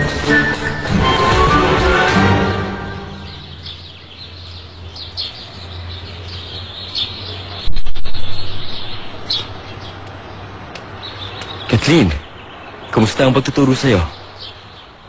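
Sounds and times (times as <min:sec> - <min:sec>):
birds chirping: 0:00.0 - 0:15.0
loud low rumble: 0:07.6 - 0:09.3.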